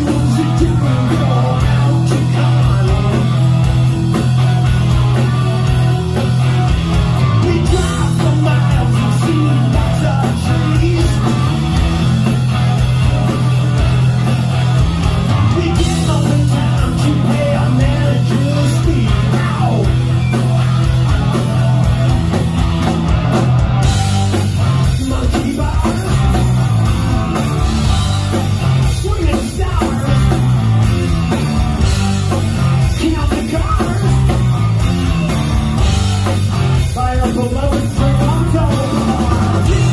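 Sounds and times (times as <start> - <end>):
person singing: 0.0 - 4.5, 36.8 - 39.9
bass guitar: 0.0 - 39.9
drums: 0.0 - 39.9
electric guitars: 0.0 - 39.9.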